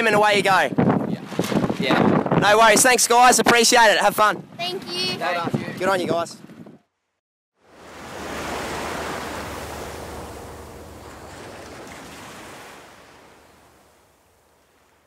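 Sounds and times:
wave-like rush of noise: 7.6s - 14.5s.

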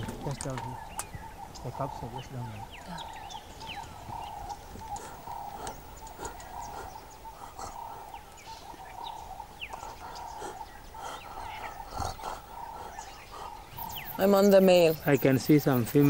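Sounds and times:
birds whistling: 0.0s - 16.0s
faint clicks: 2.8s - 12.8s.

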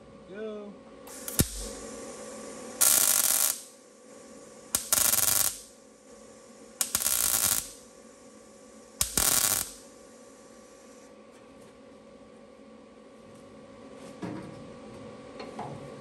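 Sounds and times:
welder crackling sizzle: 1.0s - 11.1s
welder sharp click: 1.1s - 1.8s, 2.8s - 3.7s, 4.8s - 5.7s, 6.8s - 7.8s, 9.0s - 9.8s.

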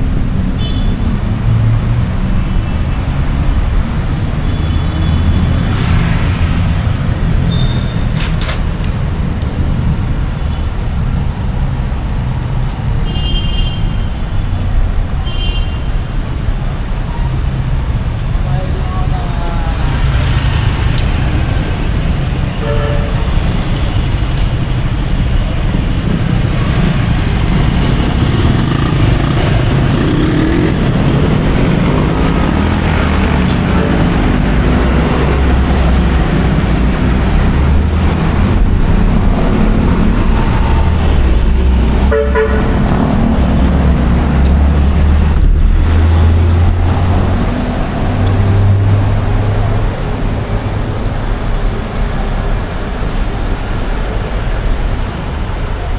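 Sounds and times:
vehicle engines rumbling: 0.0s - 55.9s
vehicle horns tooting: 22.5s - 23.4s, 42.1s - 42.8s.

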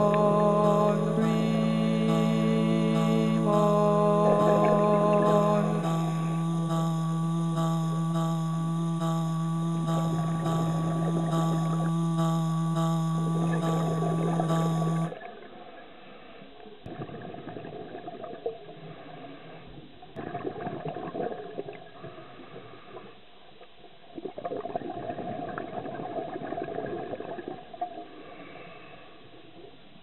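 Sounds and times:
music chord: 0.0s - 15.1s
regulator bubbles gurgling underwater: 16.9s - 19.2s, 20.2s - 22.2s, 24.1s - 28.2s.

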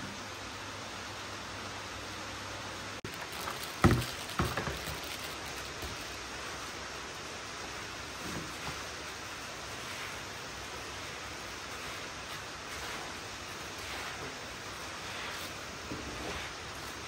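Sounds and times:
steady hiss: 0.0s - 17.0s
plastic packet crinkling: 3.0s - 6.2s.

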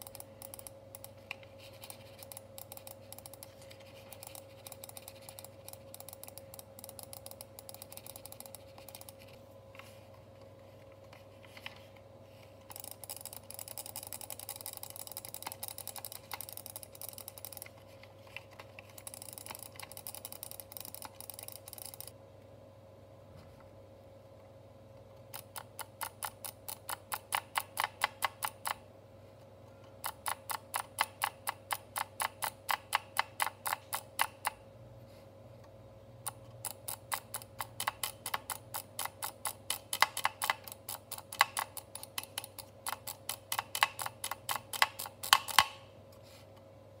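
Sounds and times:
rapid mouse button clicks: 25.4s - 28.8s.

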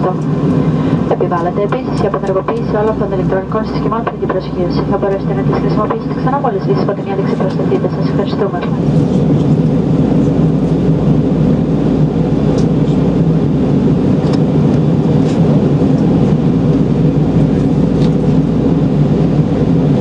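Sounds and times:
jet engines droning: 0.0s - 20.0s
rushing air: 0.2s - 2.2s.

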